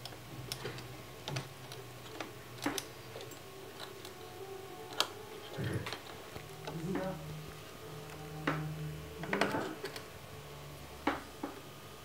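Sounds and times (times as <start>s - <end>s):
small metal parts clicking: 0.0s - 6.9s
faint low hum: 0.0s - 12.0s.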